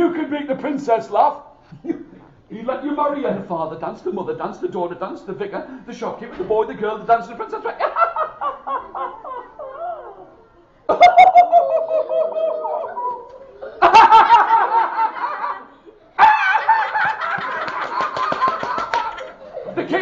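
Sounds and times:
high-pitched laughing: 0:08.4 - 0:20.0.

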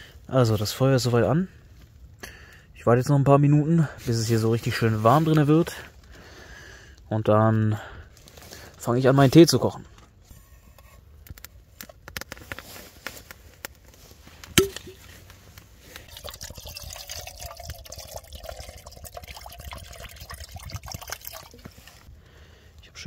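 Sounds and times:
light clicks of handling gear: 0:09.6 - 0:16.1
water poured into pot: 0:16.0 - 0:22.1.

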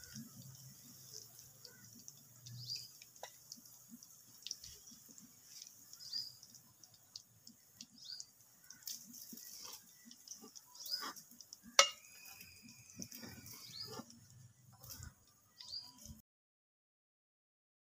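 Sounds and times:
food deep-frying in oil: 0:00.0 - 0:16.2
faint bird chirps: 0:04.4 - 0:16.2
metal spoon clicking on pan: 0:11.0 - 0:12.4.

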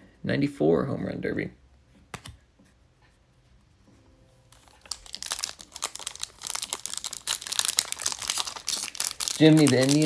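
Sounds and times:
wrapper crinkling and tearing: 0:04.5 - 0:10.0.

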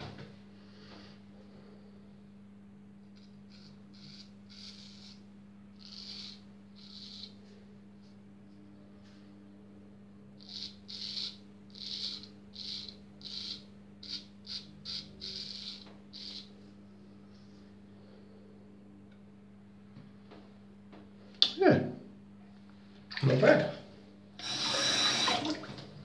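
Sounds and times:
razor scraping stubble: 0:03.2 - 0:07.5.

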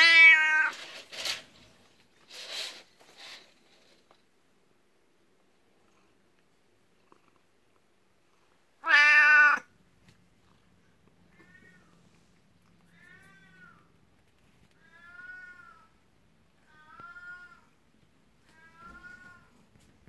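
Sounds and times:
cat meowing: 0:00.0 - 0:00.9, 0:08.8 - 0:09.7, 0:12.8 - 0:13.9, 0:14.8 - 0:16.0, 0:16.6 - 0:17.7, 0:18.4 - 0:19.6.

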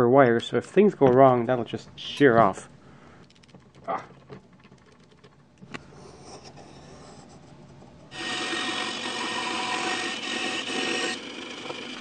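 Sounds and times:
faint handling noise: 0:00.2 - 0:08.1
band saw cutting plywood: 0:08.1 - 0:12.0.

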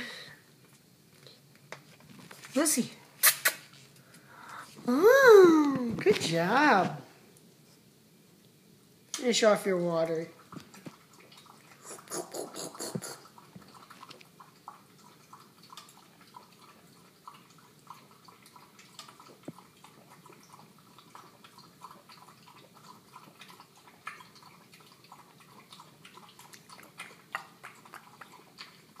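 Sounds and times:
puppy lapping water from metal bowl: 0:10.2 - 0:29.0.

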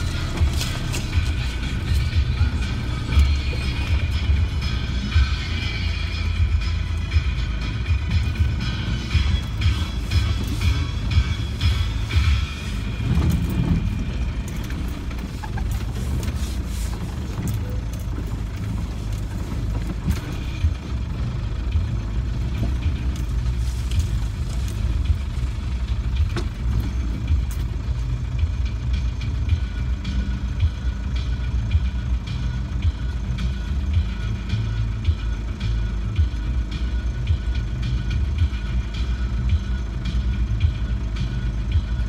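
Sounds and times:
vehicle knocks and clicks: 0:00.0 - 0:04.5, 0:07.9 - 0:28.8
diesel engine low drone: 0:00.0 - 0:42.0.

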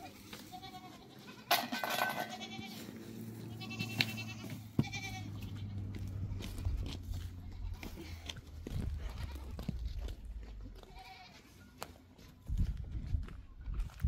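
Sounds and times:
livestock bleating: 0:00.0 - 0:08.3, 0:08.9 - 0:09.8, 0:10.8 - 0:11.6.

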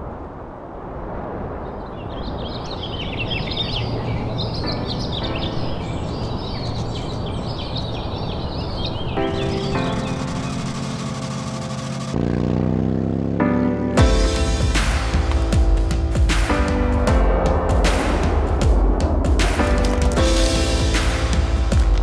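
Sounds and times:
small birds chirping: 0:01.8 - 0:12.2
steady rushing background: 0:04.0 - 0:22.0.

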